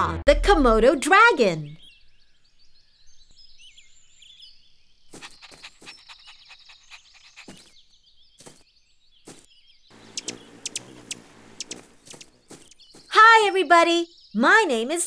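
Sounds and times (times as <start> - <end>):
birds chirping: 1.0 - 15.0
short sharp clicks: 10.1 - 12.3.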